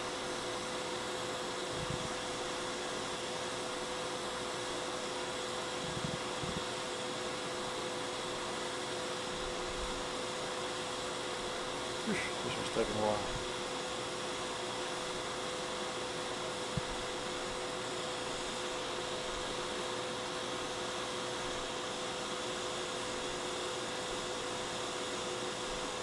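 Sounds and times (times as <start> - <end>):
hot air station air rushing: 5.7 - 6.8, 11.9 - 13.6.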